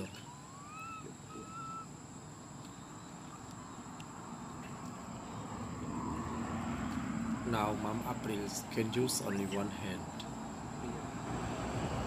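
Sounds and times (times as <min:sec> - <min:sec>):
whistled call: 0:00.0 - 0:02.0
high insect drone: 0:00.0 - 0:12.0.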